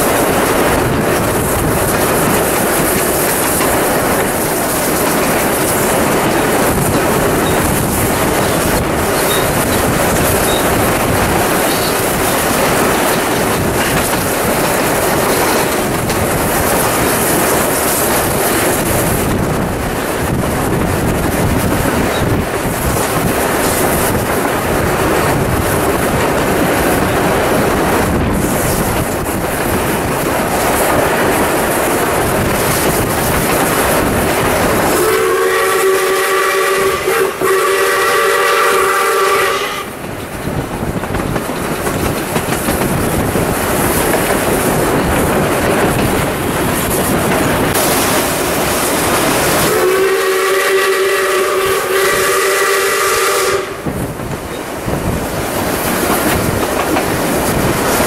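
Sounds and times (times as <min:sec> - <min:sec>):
train rushing and rail clatter: 0:00.0 - 0:58.0
steam locomotive whistle blasts: 0:35.0 - 0:40.0, 0:49.6 - 0:53.9.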